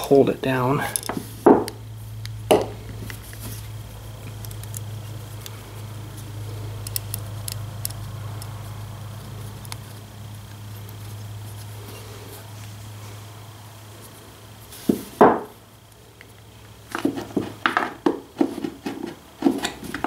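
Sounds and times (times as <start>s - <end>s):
steady low hum: 0.0s - 20.0s
small metal parts clicking: 0.8s - 1.2s, 4.3s - 5.6s, 6.8s - 8.7s.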